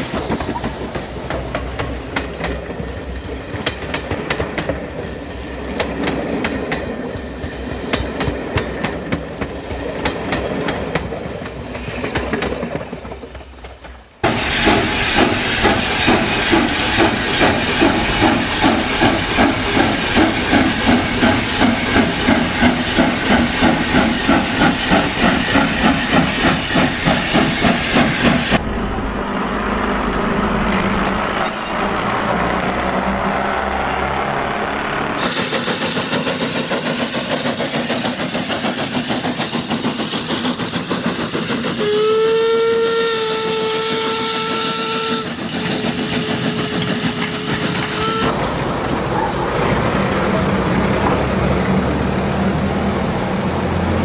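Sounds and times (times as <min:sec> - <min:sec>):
steam hissing rumble: 0:00.0 - 0:05.6, 0:14.2 - 0:54.0
steam locomotive chuffing: 0:00.0 - 0:54.0
steam whistle: 0:41.8 - 0:45.4, 0:46.3 - 0:48.4.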